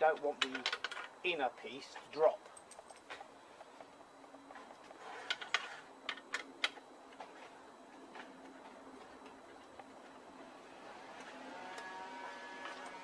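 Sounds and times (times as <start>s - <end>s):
sharp metallic clicks and clinks: 2.2s - 3.3s.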